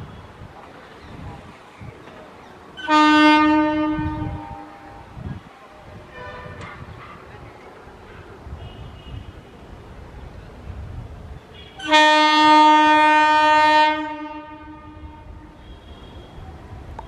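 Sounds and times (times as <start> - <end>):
train rumbling: 0.0 - 17.0
train horn blast: 2.8 - 5.2, 6.1 - 6.9, 11.6 - 16.4.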